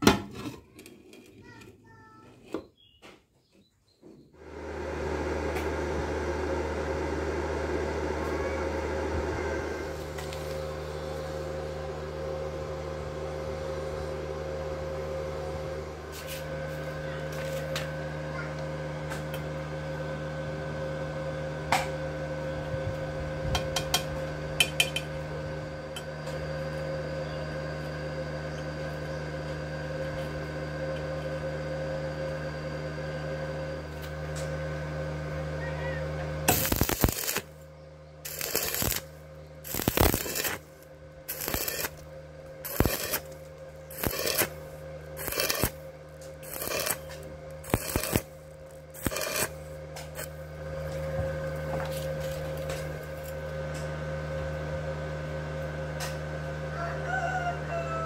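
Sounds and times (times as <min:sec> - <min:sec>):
steady hum: 0:04.4 - 0:56.7
welding arc crackling: 0:36.4 - 0:37.6, 0:38.2 - 0:53.5.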